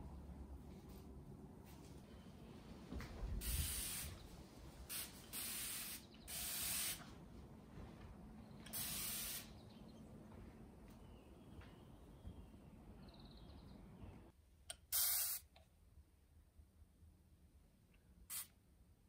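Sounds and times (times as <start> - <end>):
spray bottle hissing spritzes: 3.4 - 4.2, 4.9 - 7.1, 8.7 - 9.6, 14.9 - 15.5, 18.3 - 18.5.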